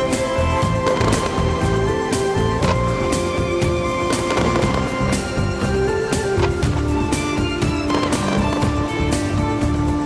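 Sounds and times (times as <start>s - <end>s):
loud steady music: 0.0s - 10.0s
fireworks shells bursting: 4.0s - 9.4s.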